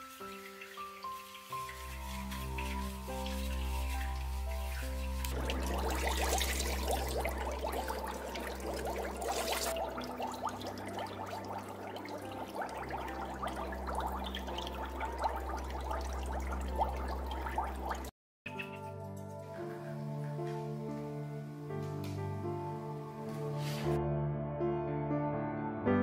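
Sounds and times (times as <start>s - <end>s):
bath water splashing: 0.0s - 18.1s
water pouring hiss: 0.0s - 18.1s, 23.5s - 23.9s
water dripping: 0.0s - 21.1s.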